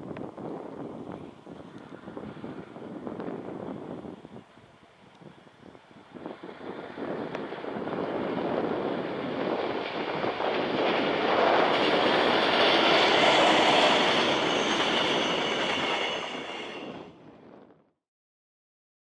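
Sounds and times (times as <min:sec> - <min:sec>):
diesel locomotive engine: 0:00.2 - 0:17.6
train wheels on rails: 0:04.8 - 0:17.2.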